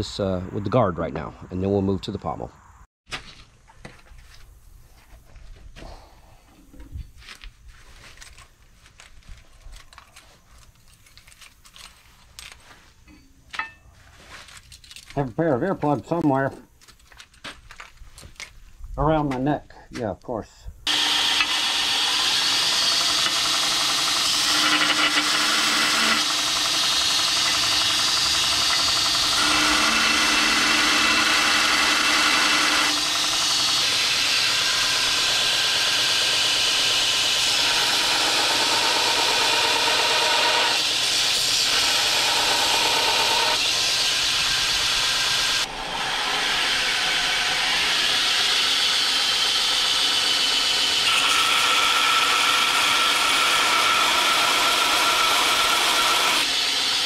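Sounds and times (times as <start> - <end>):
belt grinder grinding steel: 20.9 - 57.0.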